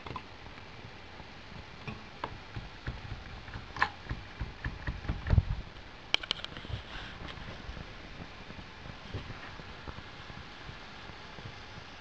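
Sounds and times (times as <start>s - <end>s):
small parts clicking and tapping: 6.1s - 6.6s.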